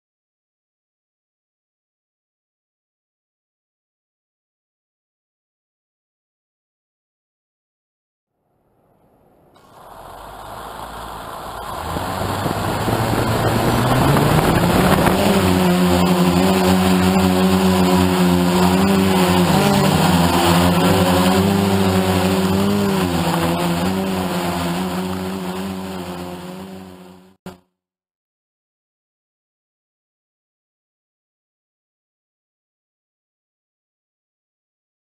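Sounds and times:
quadcopter motors humming: 9.6s - 27.6s.

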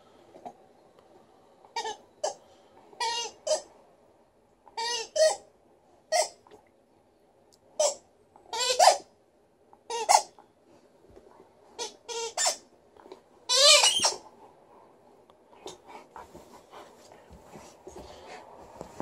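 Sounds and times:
rubber toy squeaking: 1.8s - 2.4s, 3.0s - 3.7s, 4.8s - 5.4s, 7.8s - 9.1s, 9.9s - 10.3s, 11.8s - 12.7s, 13.5s - 14.2s.

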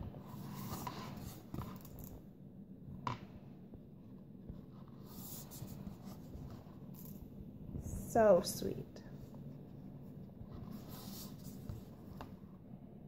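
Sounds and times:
soft handling rustles: 9.1s - 12.7s.

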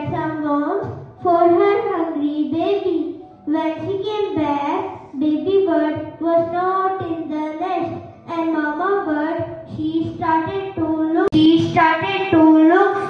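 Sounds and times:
child singing into a microphone: 5.2s - 13.0s.

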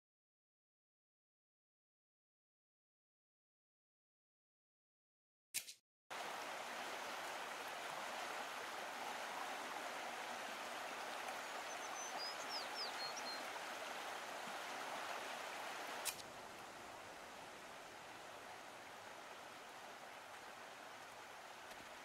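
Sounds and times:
stream water running: 6.1s - 22.0s.

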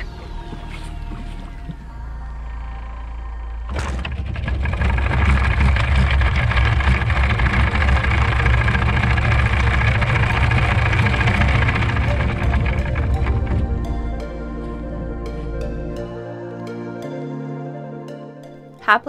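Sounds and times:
low rumble: 0.0s - 16.5s
anchor chain rattling over roller: 3.7s - 14.2s.

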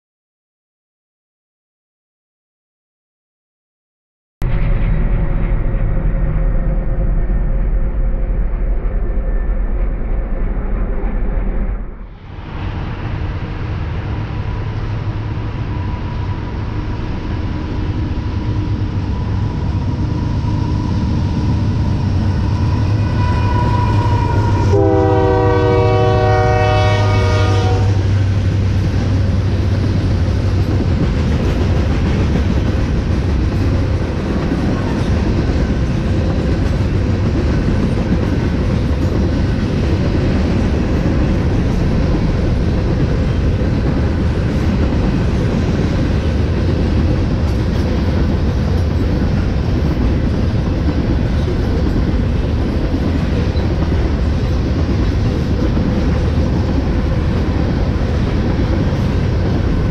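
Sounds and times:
rumble of freight cars rolling: 4.4s - 59.9s
locomotive air horn blast: 22.8s - 28.4s.

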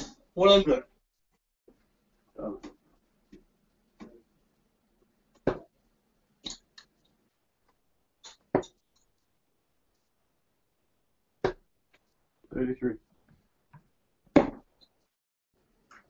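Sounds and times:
darts thudding into dartboard: 14.3s - 14.7s.

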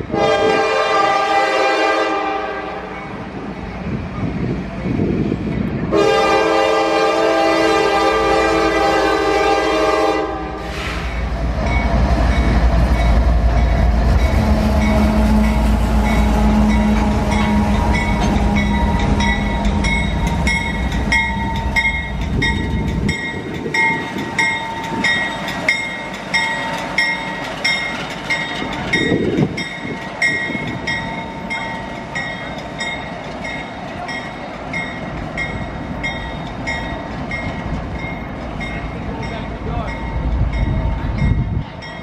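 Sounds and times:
deep locomotive engine rumble: 0.0s - 42.0s
locomotive bell ringing: 11.6s - 42.0s.

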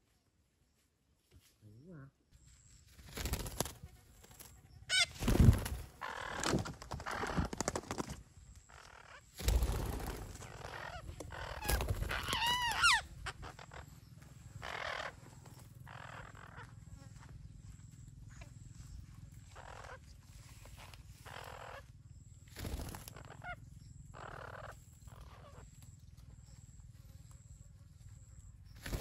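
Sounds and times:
parakeets squawking: 4.9s - 5.2s, 6.0s - 7.5s, 10.3s - 14.0s, 14.6s - 15.2s, 15.9s - 16.7s, 19.5s - 20.0s, 21.2s - 21.8s, 23.0s - 25.6s
wavering pitched call: 10.6s - 13.8s.

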